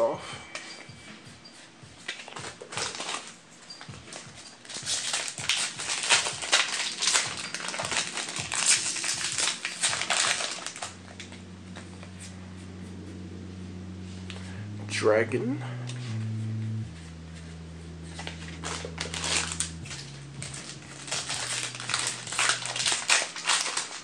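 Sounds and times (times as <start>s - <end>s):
steady low hum: 0.0s - 24.0s
foil wrapper crinkling and tearing: 2.2s - 3.3s, 4.6s - 11.4s, 18.2s - 24.0s.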